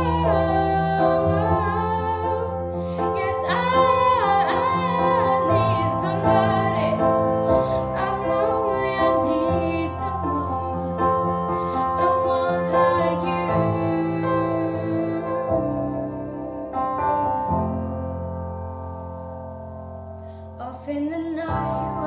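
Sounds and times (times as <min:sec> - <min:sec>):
woman singing with vibrato: 0:00.0 - 0:11.1, 0:11.7 - 0:17.8, 0:20.6 - 0:22.0.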